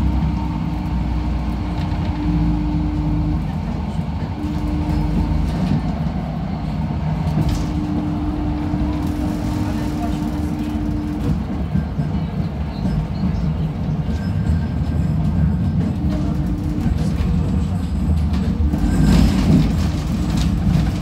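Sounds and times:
tram wheels rumbling on rail: 0.0 - 21.0.

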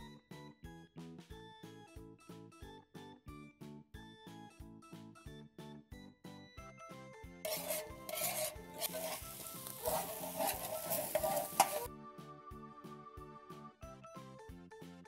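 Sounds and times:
fried rice sizzling in a pan: 7.5 - 11.9
metal spatulas scraping a pan: 7.5 - 11.9.

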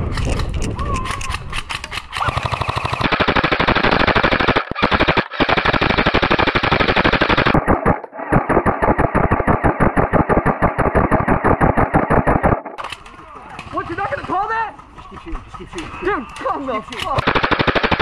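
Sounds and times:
airsoft rifle firing full auto: 2.1 - 13.0, 17.2 - 18.0.

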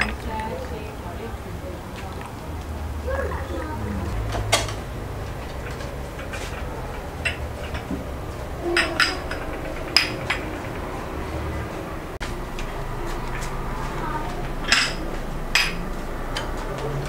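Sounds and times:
glasses clinking on saucers: 5.6 - 10.6, 14.6 - 15.9.

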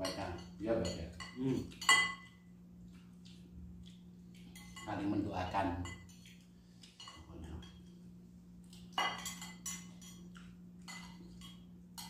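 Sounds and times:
spoons clinking against bowls: 0.0 - 2.5, 4.4 - 7.9, 8.7 - 12.0
steady low hum: 0.0 - 12.0.

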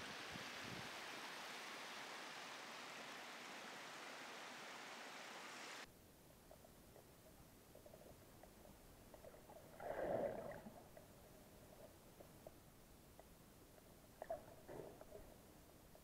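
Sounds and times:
stream water rushing over rocks: 0.0 - 5.9.

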